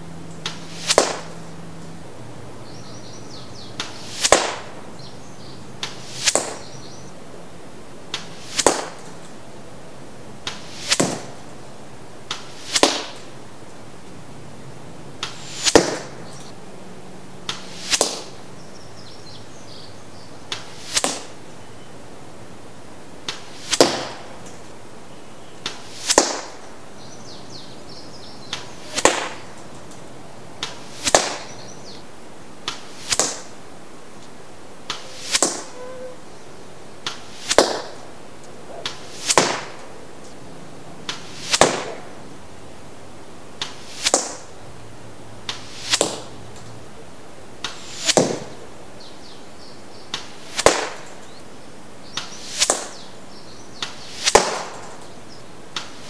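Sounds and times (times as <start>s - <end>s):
arrow vanes whistling: 0.3s - 1.5s, 2.7s - 7.2s, 8.1s - 9.4s, 10.4s - 11.4s, 12.3s - 13.3s, 15.2s - 16.6s, 17.5s - 21.9s, 27.3s - 29.6s, 34.9s - 40.4s, 41.0s - 42.2s, 43.6s - 44.5s, 45.5s - 46.3s, 47.6s - 49.4s, 52.0s - 55.2s
arrow hitting target smack: 0.4s - 1.4s, 3.8s - 4.8s, 5.8s - 6.7s, 8.1s - 9.2s, 10.4s - 11.4s, 12.3s - 13.3s, 15.2s - 16.2s, 17.5s - 18.4s, 20.5s - 21.4s, 23.3s - 24.3s, 25.6s - 26.6s, 28.5s - 29.5s, 30.6s - 31.6s, 32.6s - 33.5s, 34.9s - 35.8s, 37.0s - 38.0s, 38.8s - 39.9s, 41.1s - 42.1s, 43.6s - 44.5s, 45.5s - 46.3s, 47.6s - 48.6s, 50.1s - 51.1s, 52.2s - 53.0s, 53.8s - 55.0s
arrows whooshing past: 0.4s - 1.6s, 3.8s - 4.9s, 5.8s - 6.8s, 8.1s - 9.4s, 10.4s - 11.6s, 12.3s - 13.4s, 15.2s - 16.6s, 17.4s - 18.4s, 20.5s - 21.4s, 23.2s - 24.7s, 25.6s - 26.7s, 28.5s - 30.0s, 30.6s - 31.6s, 32.6s - 33.6s, 34.8s - 36.3s, 37.0s - 40.4s, 41.0s - 42.3s, 43.6s - 44.6s, 45.4s - 46.8s, 47.6s - 48.6s, 50.1s - 51.3s, 52.2s - 53.0s, 53.8s - 55.1s, 55.7s - 56.0s.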